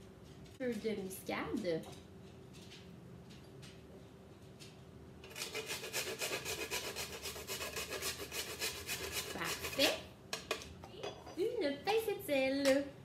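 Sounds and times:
nutmeg scraping on a grater: 0:05.3 - 0:10.0.

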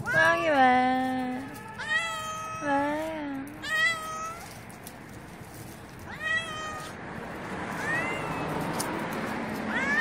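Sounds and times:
cat meowing: 0:01.4 - 0:02.8, 0:03.5 - 0:04.6, 0:06.1 - 0:07.0, 0:07.7 - 0:08.6, 0:09.7 - 0:10.0.

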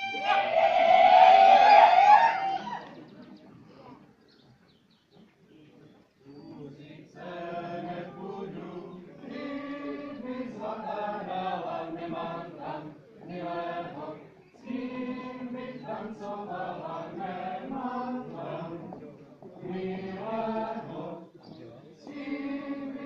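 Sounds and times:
group singing folk song: 0:06.6 - 0:23.0.

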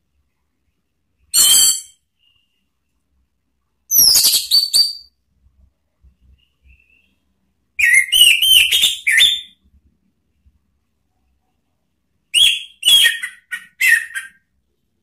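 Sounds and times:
thrush singing whistled notes: 0:12.3 - 0:14.4.

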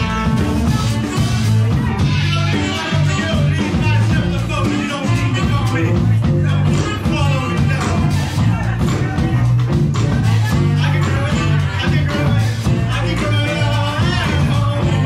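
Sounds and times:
saxophone: 0:00.0 - 0:06.3
drums: 0:00.0 - 0:15.0
person singing: 0:00.0 - 0:15.0
stepping bass line: 0:00.0 - 0:15.0.

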